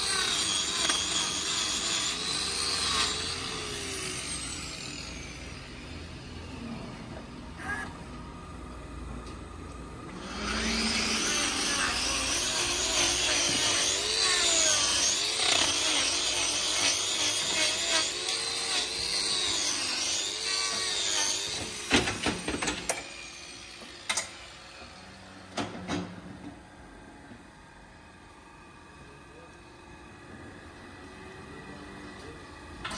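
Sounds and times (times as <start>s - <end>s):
power grinder whining: 0.0s - 8.1s, 9.9s - 25.6s.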